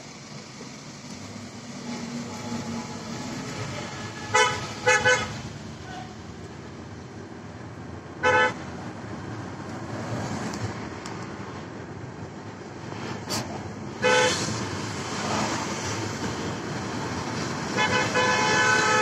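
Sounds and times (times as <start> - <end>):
road noise inside moving car: 0.0 - 19.0
car horn toots: 4.1 - 5.3, 17.8 - 19.0.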